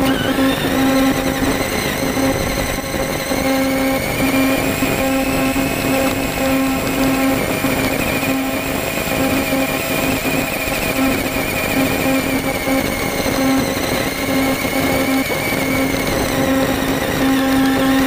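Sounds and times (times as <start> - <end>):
rc truck motor whine: 0.0 - 18.0.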